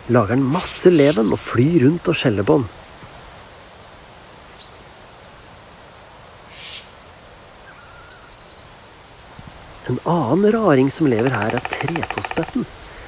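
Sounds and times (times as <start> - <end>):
jay harsh scolding call: 11.0 - 12.7.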